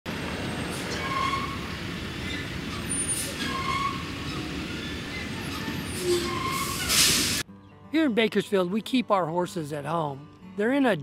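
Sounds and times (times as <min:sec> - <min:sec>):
traffic rumble: 0:00.1 - 0:07.4
brief hissy surges: 0:06.6 - 0:07.4.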